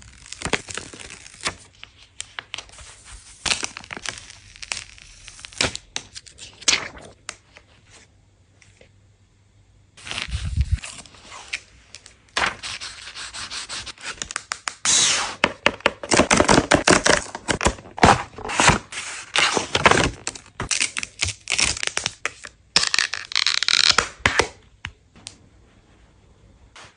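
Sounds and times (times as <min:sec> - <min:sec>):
cutter slitting packaging: 0:12.5 - 0:24.4.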